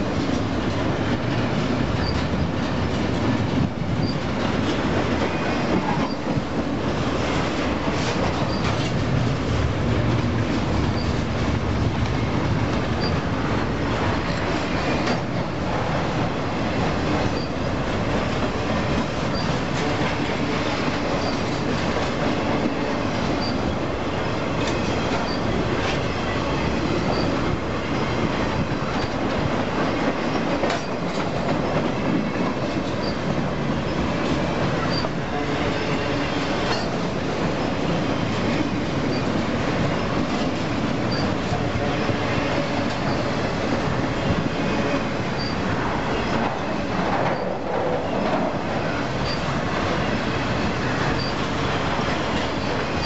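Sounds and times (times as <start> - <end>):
train wheels rumbling on rails: 0.0 - 53.0.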